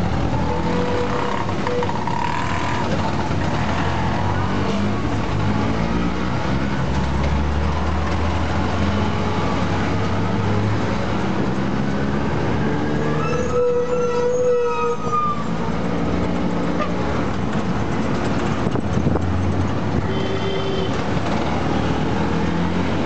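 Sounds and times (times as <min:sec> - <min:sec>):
road and traffic noise: 0:00.0 - 0:23.0.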